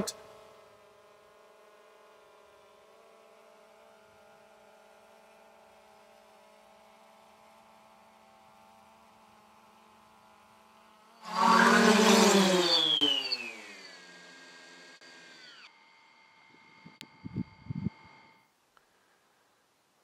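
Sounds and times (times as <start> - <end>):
drone propellers humming: 0.0 - 18.5.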